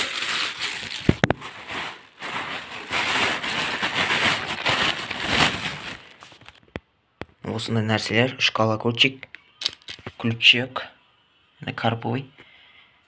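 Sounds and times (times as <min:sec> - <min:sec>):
plastic bag crinkling: 0:00.0 - 0:06.6.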